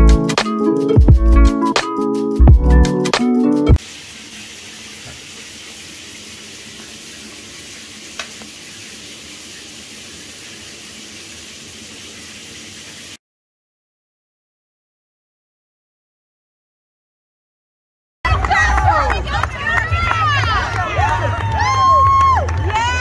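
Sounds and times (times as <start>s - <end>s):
background music: 0.0s - 3.8s
steady hiss: 3.8s - 13.2s.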